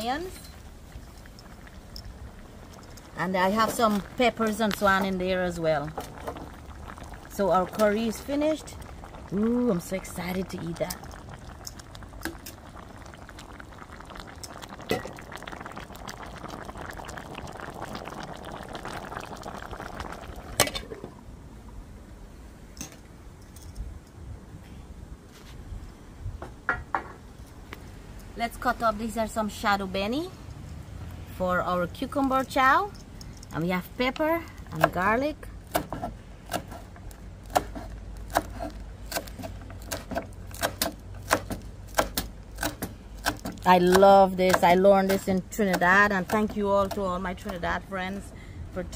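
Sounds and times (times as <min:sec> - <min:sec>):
curry bubbling in a pan: 0:00.0 - 0:21.0, 0:32.0 - 0:47.6.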